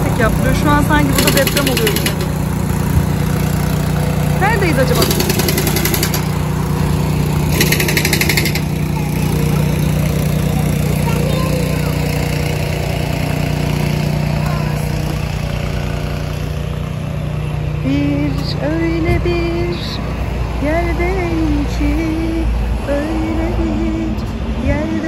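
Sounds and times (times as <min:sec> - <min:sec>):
car engine and road drone: 0:00.0 - 0:25.0
brief rapid rattle: 0:07.5 - 0:08.7.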